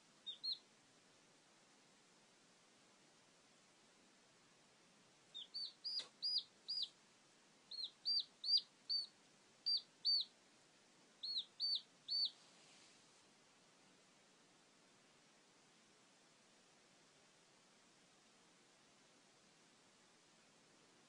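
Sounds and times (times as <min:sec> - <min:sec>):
chick peeping: 0:00.2 - 0:00.6, 0:05.3 - 0:07.0, 0:07.7 - 0:10.3, 0:11.2 - 0:12.4.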